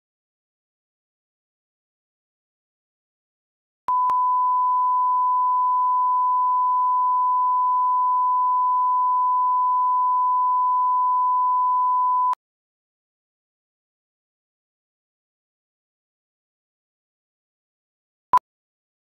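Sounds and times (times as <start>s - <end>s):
sine test tone: 3.9s - 12.4s.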